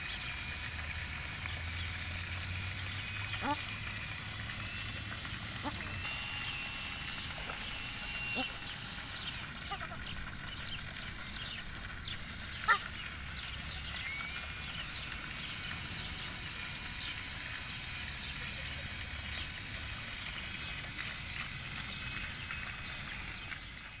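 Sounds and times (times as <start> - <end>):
small birds chirping: 0.0 - 23.9
ducks calling: 1.6 - 13.6.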